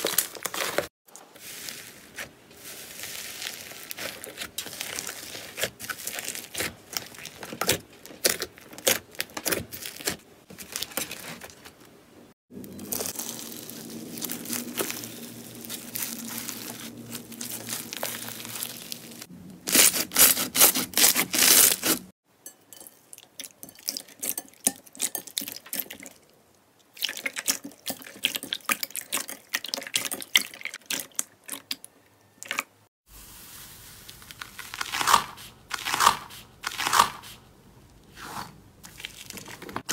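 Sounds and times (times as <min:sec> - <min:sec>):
slime crackling and squishing: 0:00.0 - 0:11.6, 0:12.6 - 0:22.1, 0:33.2 - 0:36.9, 0:38.2 - 0:39.9.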